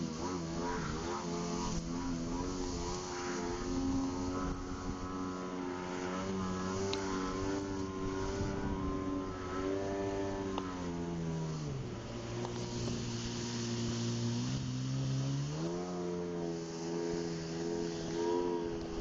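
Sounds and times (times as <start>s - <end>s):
jet ski engine running: 0.0s - 19.0s.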